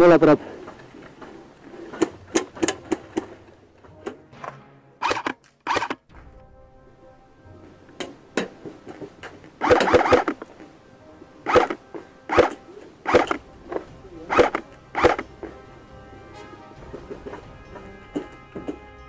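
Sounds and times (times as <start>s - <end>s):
music: 0.0s - 19.0s
airsoft rifle bursts: 5.0s - 6.0s, 9.6s - 10.5s, 11.4s - 13.4s, 14.3s - 15.3s.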